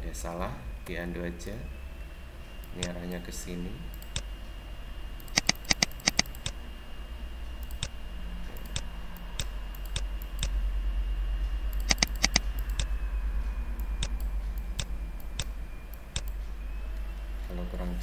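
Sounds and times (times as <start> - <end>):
low mains hum: 0.0 - 18.0
computer mouse clicking: 2.6 - 3.0, 3.9 - 4.3, 5.2 - 6.6, 7.6 - 8.0, 8.6 - 10.6, 11.7 - 12.9, 13.8 - 16.4.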